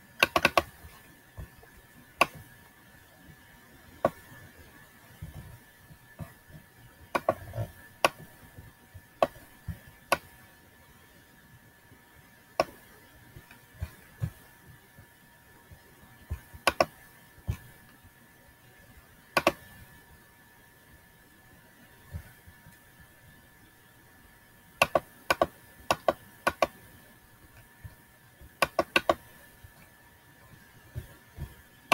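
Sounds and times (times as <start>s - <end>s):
computer input clicks: 0.2s - 0.9s, 16.6s - 17.0s, 19.4s - 19.7s, 24.8s - 26.8s, 28.6s - 29.3s.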